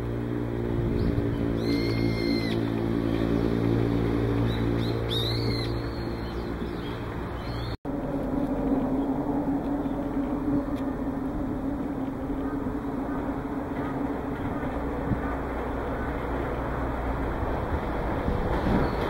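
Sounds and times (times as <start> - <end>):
low engine hum: 0.0 - 19.0
bird screech calls: 1.4 - 2.7, 4.5 - 7.7.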